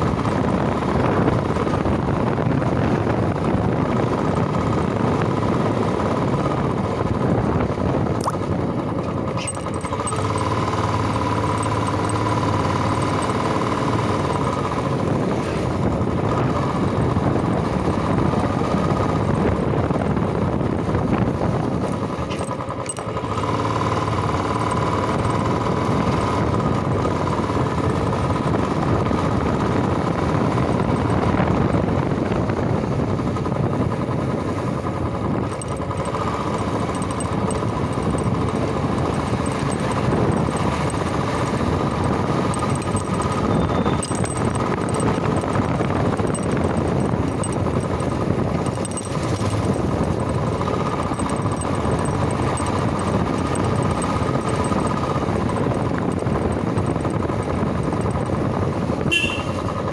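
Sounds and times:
motorcycle engine running: 0.0 - 59.9
road and wind noise: 0.0 - 59.9.

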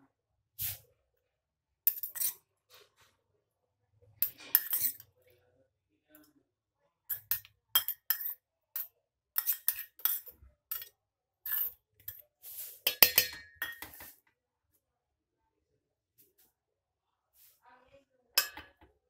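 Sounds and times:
metal spoon scraping steel bowl: 1.9 - 2.4, 4.2 - 5.2, 7.1 - 14.2, 18.4 - 18.8.

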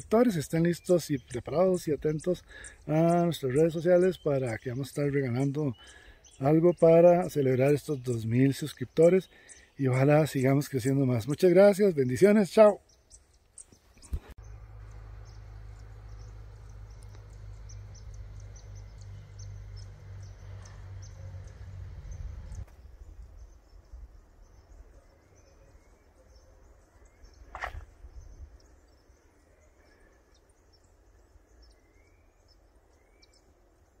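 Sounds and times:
small birds chirping: 0.0 - 34.0
low wind rumble on microphone: 15.2 - 24.7, 27.6 - 28.8.

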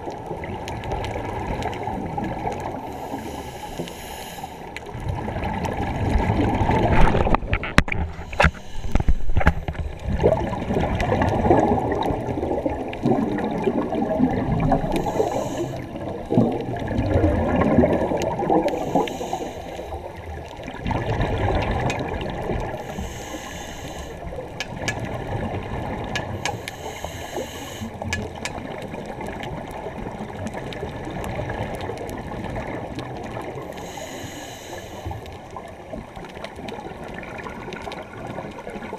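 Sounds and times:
underwater bubbles gurgling: 0.0 - 38.9.

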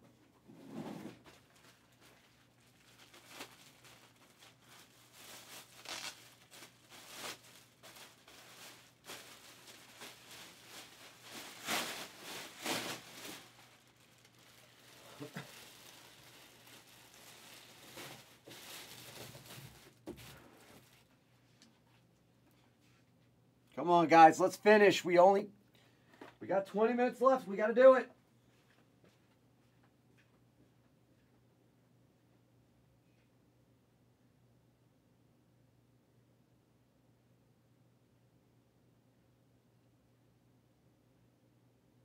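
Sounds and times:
paper or packaging rustling: 1.0 - 21.1.

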